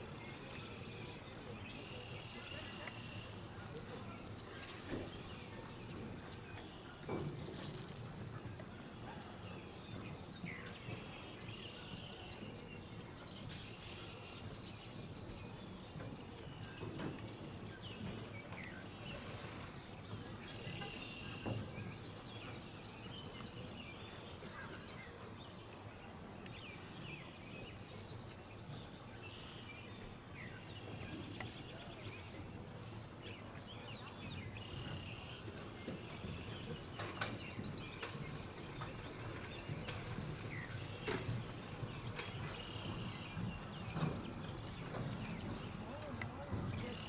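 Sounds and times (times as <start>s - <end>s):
low background noise: 0.0s - 47.0s.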